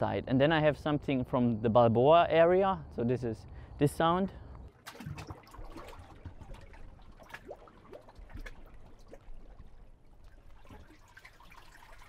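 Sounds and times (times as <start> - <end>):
water lapping among rocks: 4.7 - 12.0.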